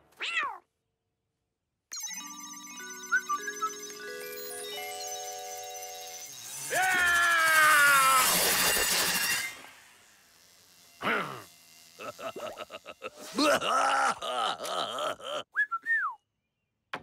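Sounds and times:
cartoon character groaning: 0:06.7 - 0:08.4, 0:11.0 - 0:15.5.

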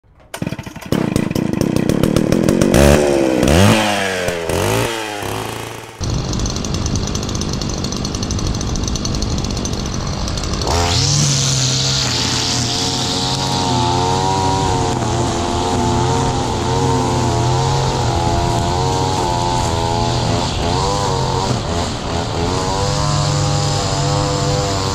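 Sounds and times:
line trimmer engine revving: 0:00.1 - 0:24.9.

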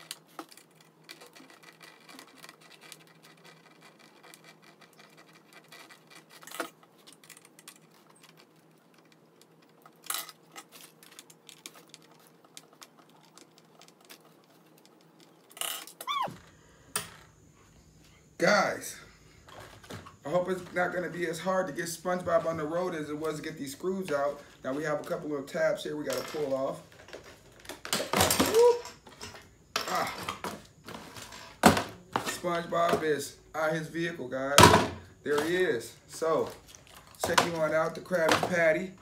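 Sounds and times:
faint scratching and ticking: 0:00.0 - 0:16.6.

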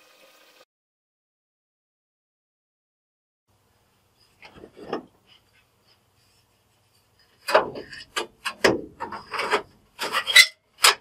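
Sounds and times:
scraping gasket residue off metal: 0:06.2 - 0:11.0.

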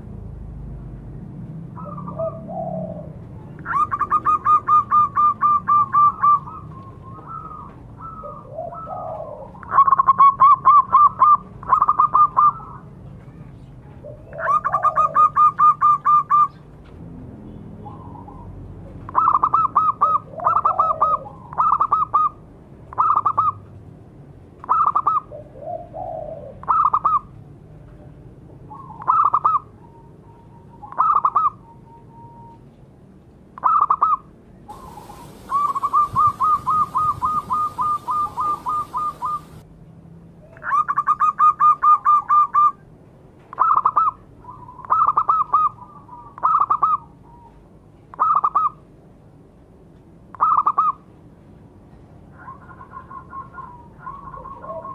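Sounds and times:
doves cooing: 0:01.8 - 0:13.0, 0:14.0 - 0:16.6, 0:17.8 - 0:23.6, 0:24.6 - 0:27.4, 0:28.7 - 0:32.7, 0:33.6 - 0:39.6, 0:43.5 - 0:48.8, 0:52.3 - 0:54.9.

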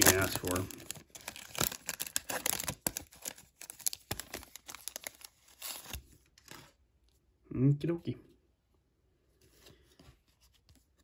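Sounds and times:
foil wrapper crinkling and tearing: 0:00.0 - 0:06.1.

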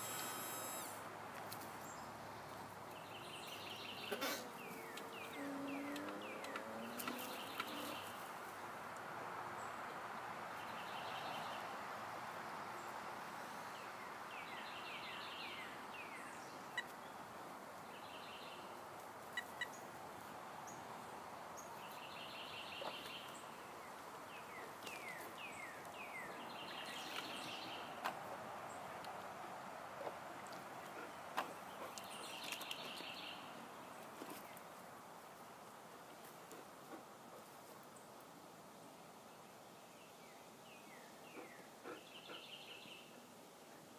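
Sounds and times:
background hiss: 0:00.0 - 0:43.9.

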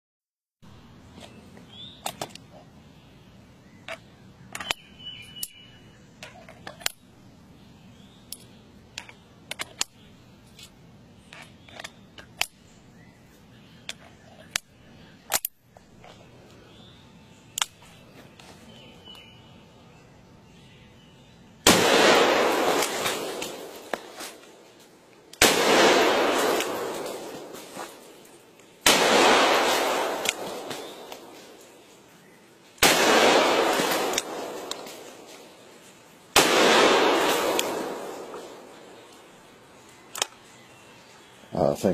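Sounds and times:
gunshots with rumble: 0:21.6 - 0:23.9, 0:25.4 - 0:27.5, 0:28.8 - 0:31.1, 0:32.8 - 0:35.1, 0:36.4 - 0:38.7.

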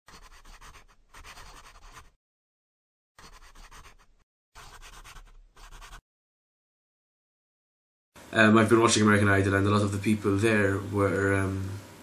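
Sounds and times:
pen scratching on paper: 0:00.1 - 0:02.2, 0:03.2 - 0:06.0.

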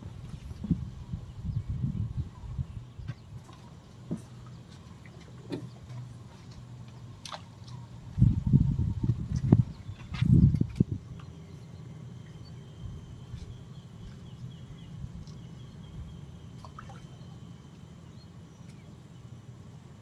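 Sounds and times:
wind buffeting microphone: 0:00.0 - 0:03.5, 0:08.0 - 0:11.2.

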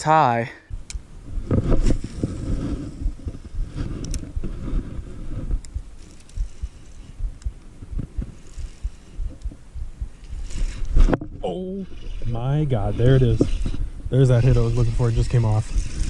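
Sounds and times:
sharp reel clicks: 0:05.6 - 0:11.1, 0:13.2 - 0:16.0.

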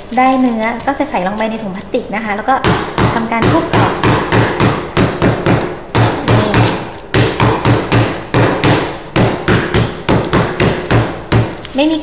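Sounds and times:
pestle pounding on cutting board: 0:02.6 - 0:11.7.

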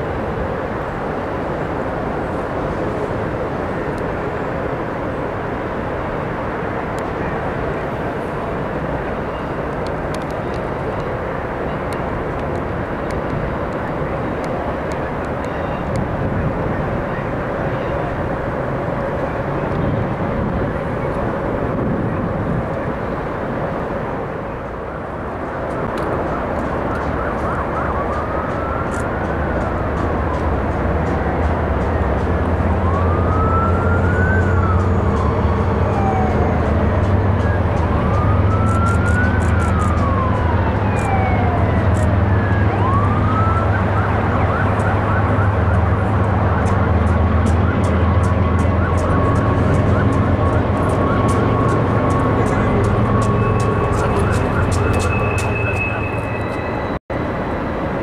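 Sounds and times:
steady low rumble: 0:10.0 - 0:58.0
large vehicle passing: 0:27.6 - 0:57.6.

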